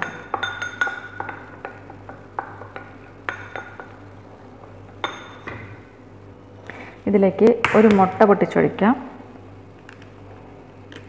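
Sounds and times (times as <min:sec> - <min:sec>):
spoon clinking against glass: 0:00.0 - 0:01.5, 0:03.3 - 0:03.9, 0:05.0 - 0:05.7.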